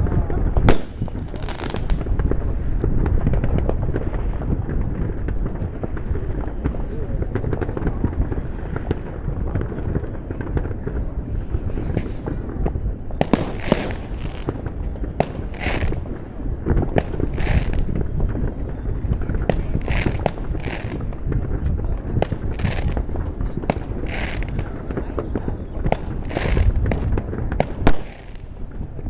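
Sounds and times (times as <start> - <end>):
firecracker bangs: 0.0 - 29.0
rumble of distant explosions: 0.0 - 29.0
hissy firework bursts: 0.4 - 5.3, 5.9 - 18.3, 19.3 - 29.0.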